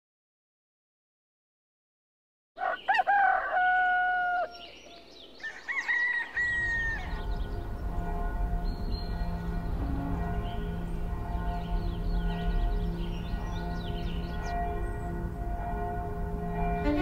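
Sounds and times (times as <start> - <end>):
rooster crowing: 2.6 - 7.4
low steady drone: 6.8 - 17.0.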